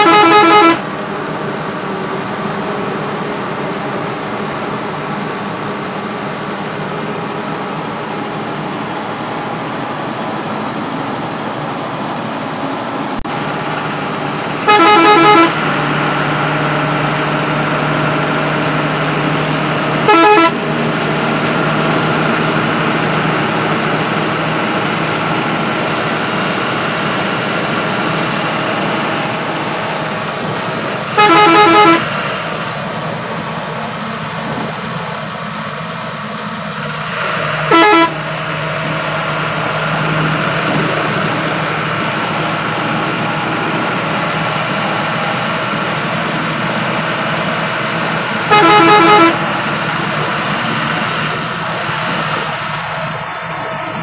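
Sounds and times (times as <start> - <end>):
bus horn warbling: 0.0 - 1.0, 14.1 - 23.3, 23.9 - 32.6, 37.4 - 39.8, 46.6 - 49.9
bus engine and road noise: 0.0 - 54.0.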